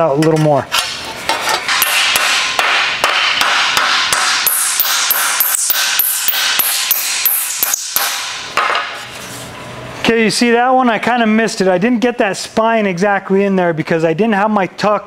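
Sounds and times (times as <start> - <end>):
mallet striking steel sheet: 1.7 - 9.0.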